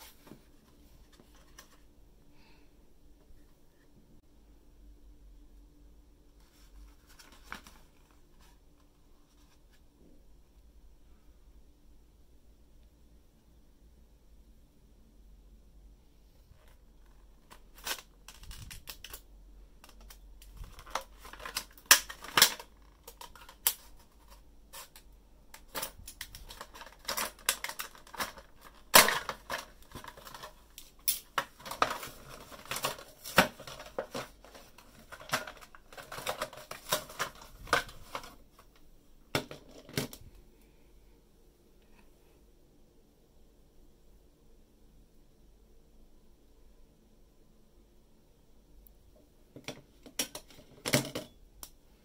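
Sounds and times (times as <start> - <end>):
hard plastic packaging crackling: 16.6 - 38.8.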